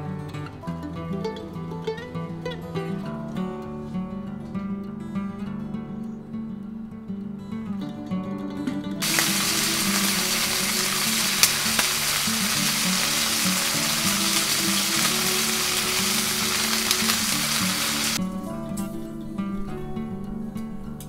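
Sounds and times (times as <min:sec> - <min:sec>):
bacon sizzling in a frying pan: 0:09.0 - 0:18.2.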